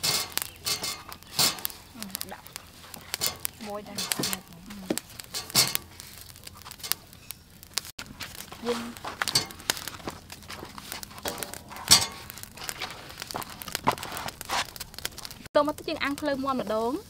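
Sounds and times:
corn knocking on metal grill: 0.0s - 2.2s, 3.1s - 6.0s, 6.6s - 7.1s, 9.0s - 12.4s
corn husks rustling: 0.0s - 17.0s.

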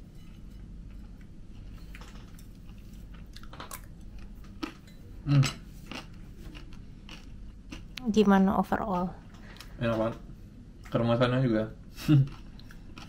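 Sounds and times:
crunchy chewing: 0.9s - 8.1s, 12.0s - 13.0s
person humming mm: 5.2s - 5.6s.

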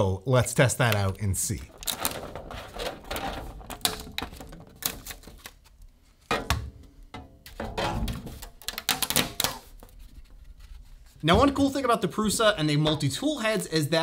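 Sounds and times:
plastic print cracking free: 0.9s - 5.6s
steel sheet flexing: 1.7s - 5.4s.

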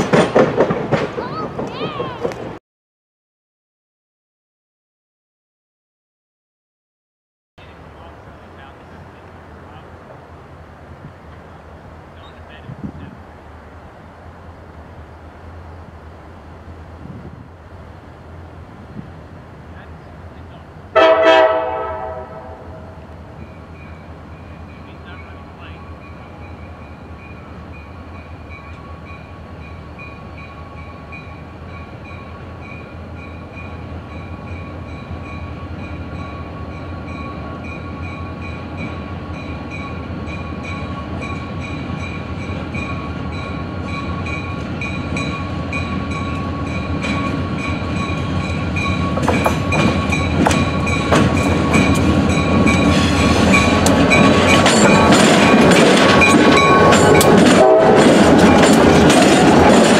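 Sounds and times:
freight train rumbling: 0.0s - 2.6s, 7.6s - 59.9s
train wheels clicking: 0.0s - 2.6s, 38.4s - 59.9s.

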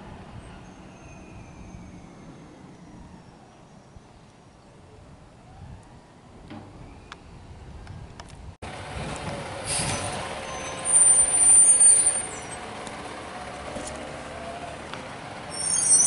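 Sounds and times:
garbage truck driving: 8.6s - 16.0s
high-pitched squeal: 9.6s - 12.6s, 15.5s - 16.0s.

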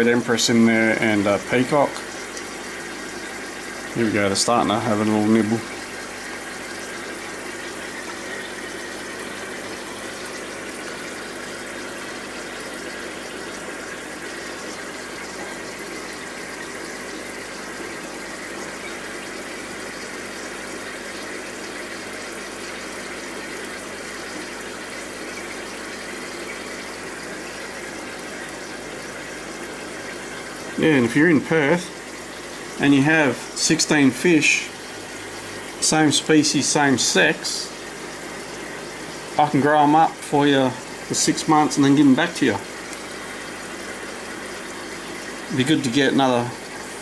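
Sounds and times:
water bubbling and splashing: 0.0s - 47.0s.

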